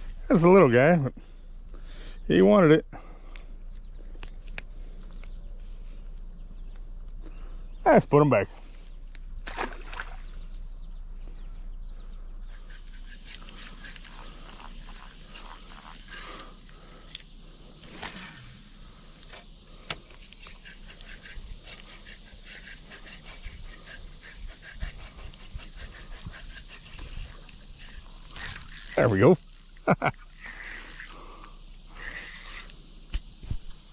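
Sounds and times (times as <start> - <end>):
insects chirping: 0.0 - 33.9
fishing reel clicks and knocks: 28.3 - 33.2.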